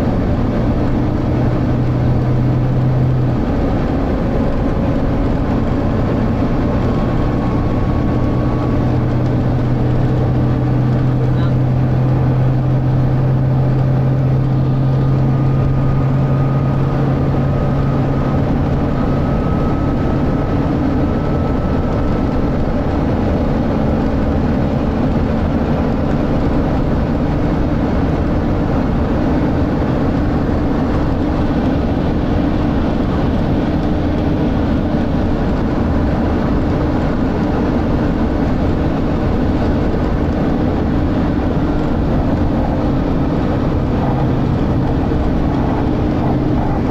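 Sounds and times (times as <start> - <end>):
bus diesel engine running: 0.0 - 46.9.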